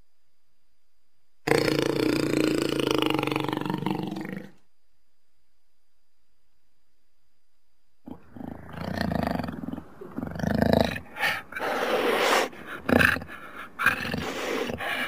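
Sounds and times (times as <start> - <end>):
jaguar calling harshly: 10.9 - 15.0.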